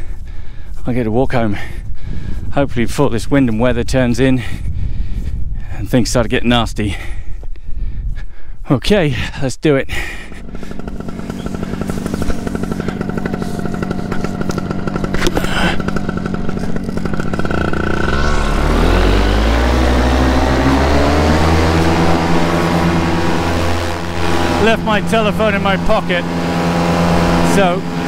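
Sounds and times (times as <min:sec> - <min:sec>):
two-stroke engine running: 0:10.0 - 0:28.0.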